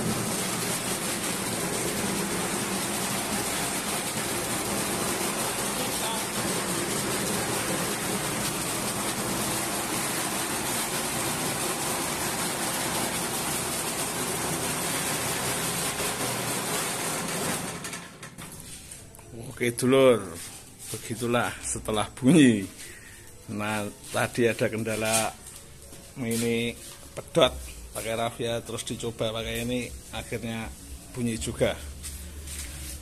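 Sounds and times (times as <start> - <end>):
small petrol engine running: 0.0 - 18.1
machine whirring: 0.0 - 18.4.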